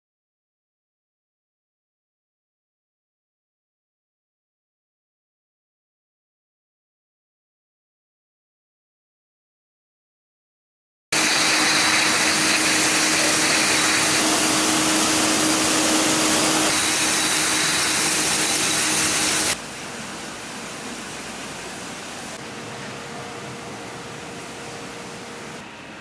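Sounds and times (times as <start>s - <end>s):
bottle filler machine hissing: 11.2s - 19.6s
low machine hum: 11.2s - 26.0s.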